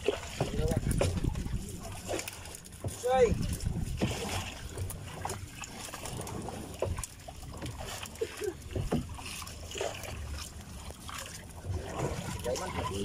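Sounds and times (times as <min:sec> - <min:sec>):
water splashing and dripping: 0:00.0 - 0:13.0
knocks against boat hull: 0:00.4 - 0:01.4.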